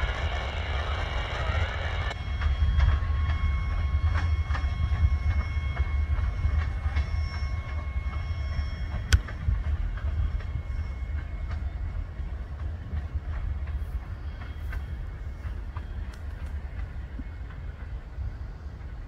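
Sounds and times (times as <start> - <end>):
freight train rumbling: 0.0 - 19.0
faint high ringing tones: 2.0 - 12.0.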